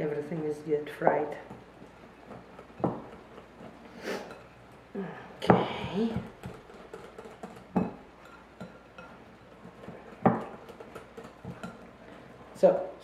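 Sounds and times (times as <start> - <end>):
whisk knocking against glass bowl: 5.5 - 11.8.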